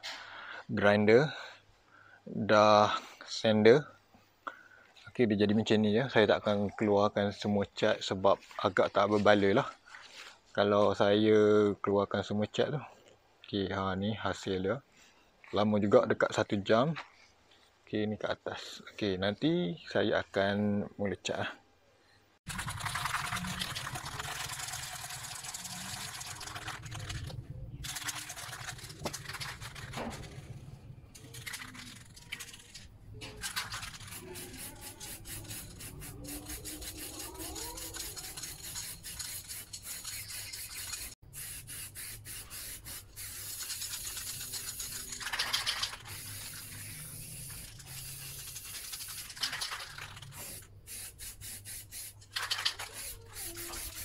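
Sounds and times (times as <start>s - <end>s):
spray-paint can hissing: 22.5s - 30.4s, 33.4s - 54.0s.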